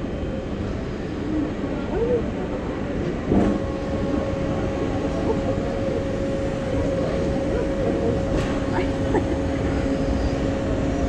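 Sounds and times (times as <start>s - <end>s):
machinery hum: 0.0s - 11.0s
machinery low rumble: 0.0s - 11.0s.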